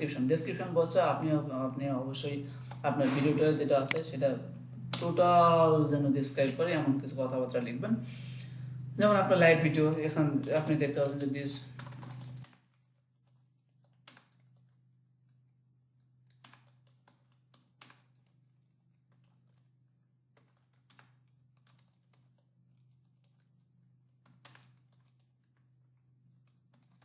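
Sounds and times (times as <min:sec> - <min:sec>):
steady low hum: 0:00.0 - 0:16.5
keyboard keystrokes: 0:10.4 - 0:14.8, 0:16.3 - 0:19.7, 0:20.4 - 0:23.6, 0:24.2 - 0:25.7, 0:26.3 - 0:27.0.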